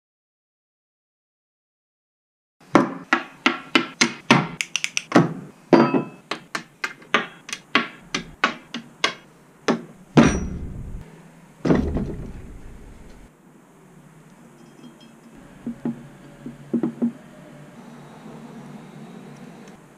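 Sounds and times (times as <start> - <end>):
sharp ringing knocks: 5.8 - 6.2, 10.2 - 11.0
heavy booming hits: 10.0 - 11.0, 11.7 - 13.3.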